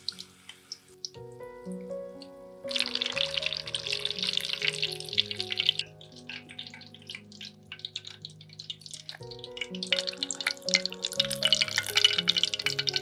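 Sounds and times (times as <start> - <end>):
hot oil crackling and spitting: 0.0 - 1.2, 2.7 - 13.0
background music with held notes: 0.0 - 13.0.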